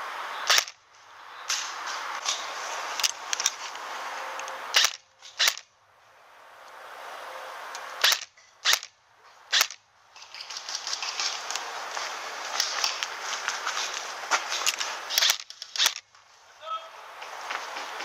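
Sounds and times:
airsoft rifle shots: 0.4 - 0.8, 4.7 - 5.7, 8.0 - 11.4, 14.7 - 16.1.

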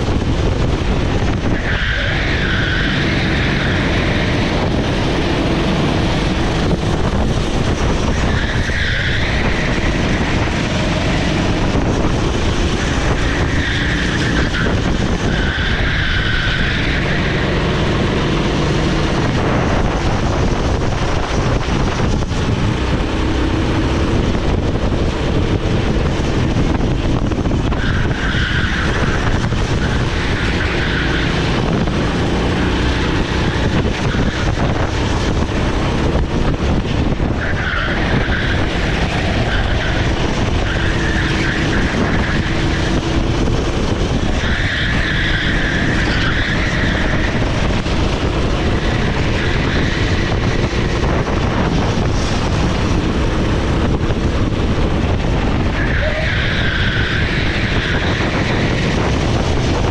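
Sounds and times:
tyres squealing: 1.4 - 6.6, 7.7 - 18.1, 27.7 - 35.8, 37.2 - 51.0, 55.4 - 59.0.

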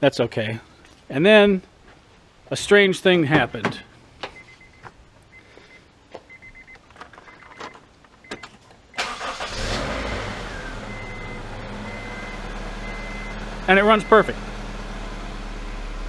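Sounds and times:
car engine starting and idling: 6.4 - 16.0.

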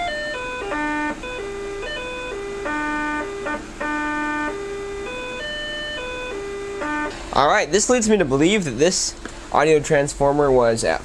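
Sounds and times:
electronic test tone stepping pitch: 0.0 - 7.2.

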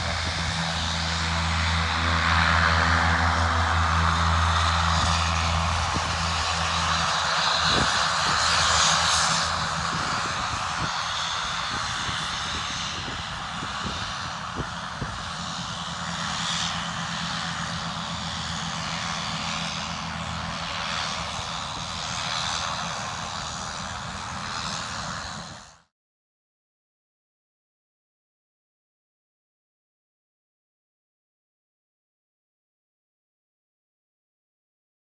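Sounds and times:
turboprop engines running: 0.0 - 25.9.

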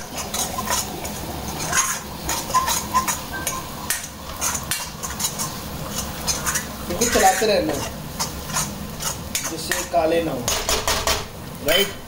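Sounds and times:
metal spatula scraping a wok: 0.0 - 10.9
light sizzle of frying: 0.0 - 12.0.

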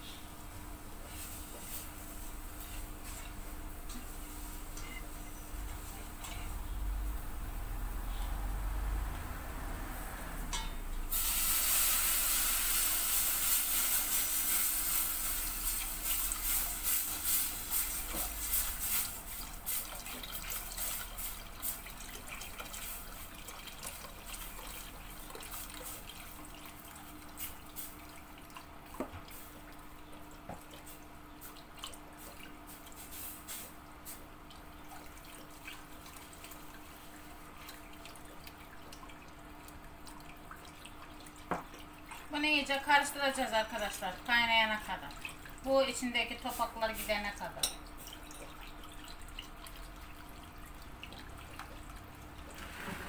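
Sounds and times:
milk hissing in hot pot: 11.1 - 21.9.

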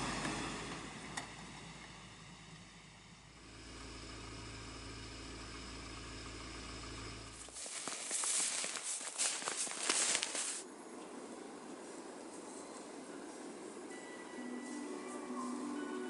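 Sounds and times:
car engine humming: 0.0 - 10.6
tyres crunching on snow: 3.4 - 10.7.

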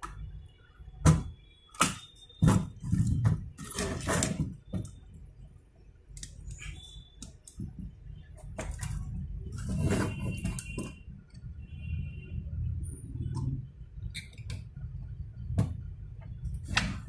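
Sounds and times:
scraping on motherboard: 2.4 - 4.7, 8.4 - 11.0.

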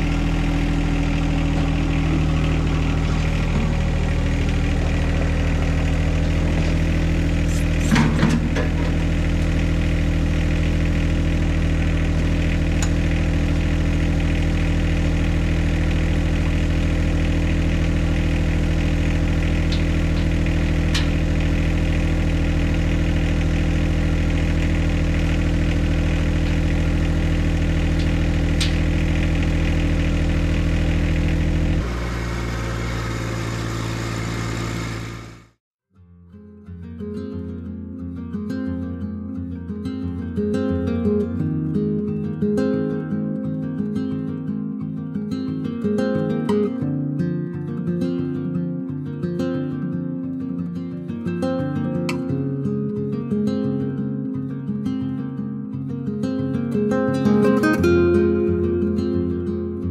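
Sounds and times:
tractor diesel engine idling: 0.0 - 35.6
loud clank: 7.5 - 9.2.

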